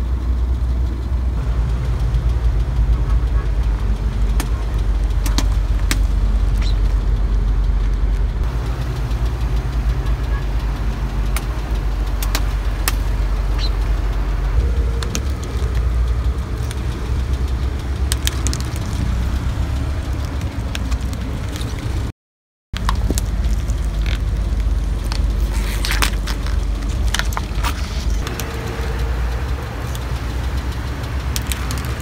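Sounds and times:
car engine idling: 0.0 - 22.1, 22.8 - 32.0
plastic cracking under tyre: 4.4 - 7.0, 11.2 - 13.7, 18.1 - 22.1, 22.8 - 28.5, 31.4 - 32.0.

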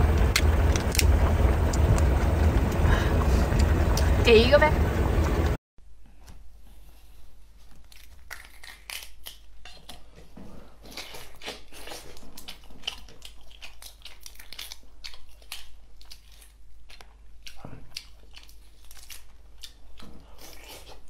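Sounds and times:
prawn shell cracking and tearing: 7.8 - 10.0, 12.8 - 16.6.

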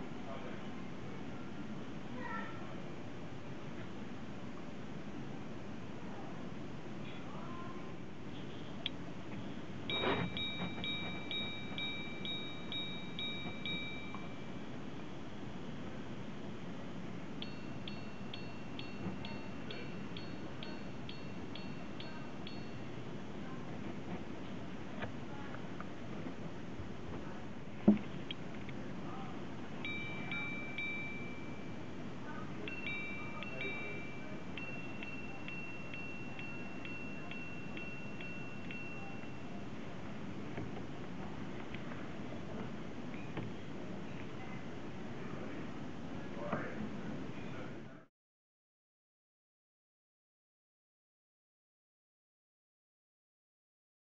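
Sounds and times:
faint steady hiss: 0.0 - 48.1
watch chiming on gongs: 9.9 - 14.8, 17.4 - 23.0, 29.8 - 31.9, 32.6 - 39.7.

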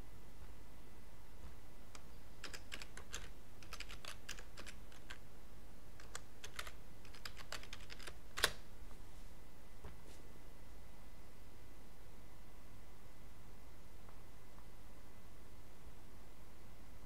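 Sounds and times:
keyboard typing: 2.0 - 5.2, 6.0 - 8.6.

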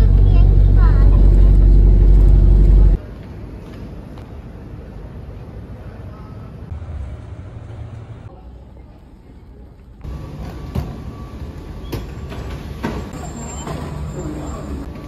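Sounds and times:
low terminal rumble: 0.0 - 15.0
luggage carousel running: 10.0 - 15.0.

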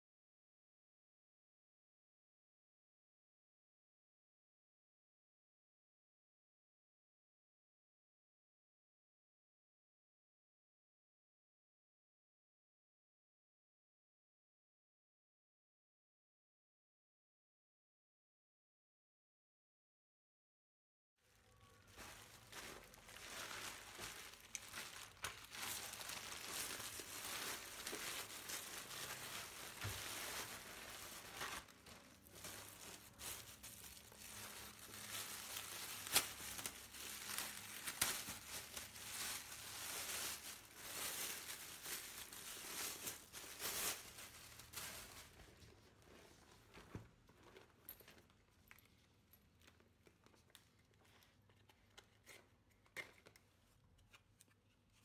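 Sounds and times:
plastic wrapping crinkling: 21.3 - 52.4.

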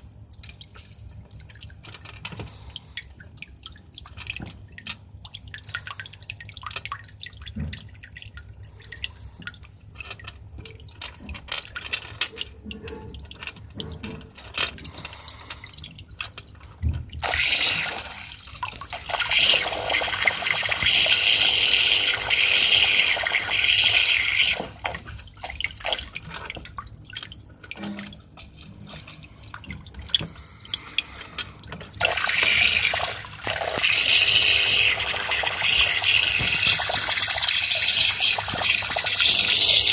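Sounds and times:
aquarium filter splashing and gurgling: 0.0 - 39.9
pebbles clicking against glass: 0.4 - 2.7, 3.7 - 5.8, 8.9 - 16.9.

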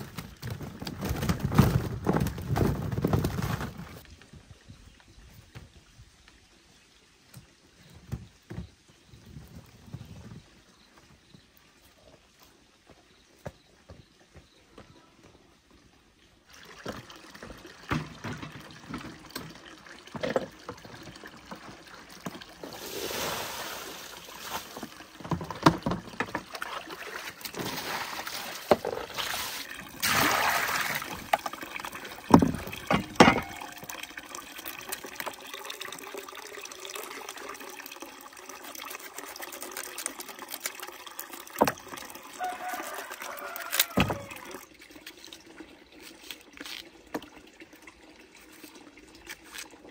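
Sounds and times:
objects knocking and clattering: 0.0 - 4.0, 17.8 - 20.9, 24.8 - 26.5, 32.3 - 33.9
water trickling and sloshing: 0.0 - 49.9
water pouring: 16.3 - 49.9.

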